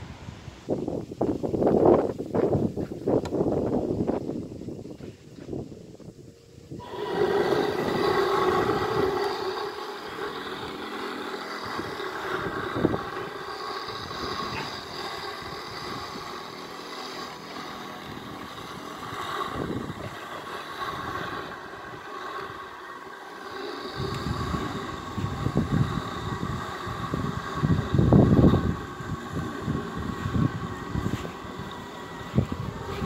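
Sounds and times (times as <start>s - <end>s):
electric motor whine: 6.7s - 33.0s.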